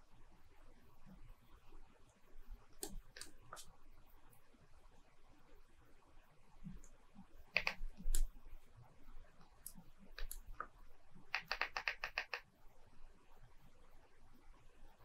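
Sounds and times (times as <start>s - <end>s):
computer keyboard keys clicking: 7.5s - 8.3s, 11.3s - 12.4s.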